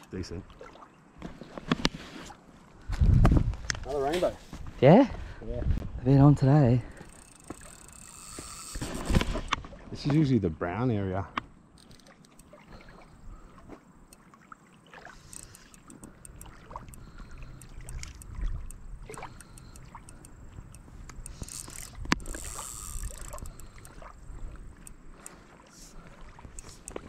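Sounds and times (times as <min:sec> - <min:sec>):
water sloshing and splashing: 0:00.0 - 0:03.1, 0:07.0 - 0:10.4, 0:11.7 - 0:27.0
small clicks and knocks: 0:11.3 - 0:12.5, 0:15.3 - 0:24.0.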